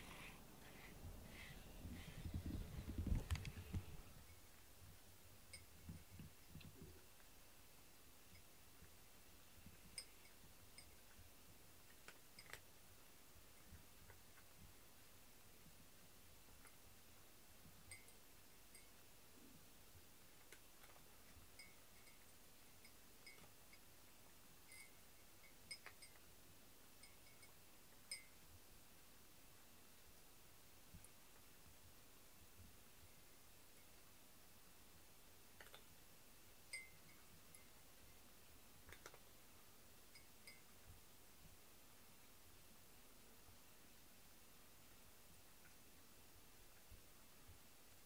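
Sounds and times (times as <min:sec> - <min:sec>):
cat crunching food: 0:38.8 - 0:39.3.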